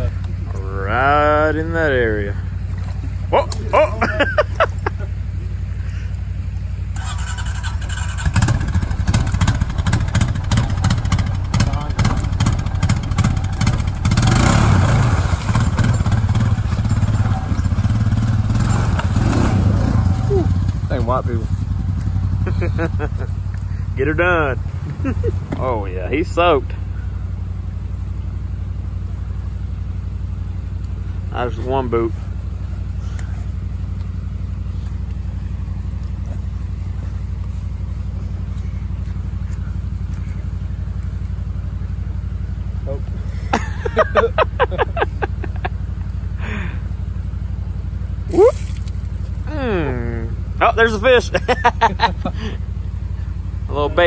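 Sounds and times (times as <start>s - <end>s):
atv engine running under load: 0.0s - 54.0s
water splashing: 13.6s - 17.6s, 48.3s - 49.4s.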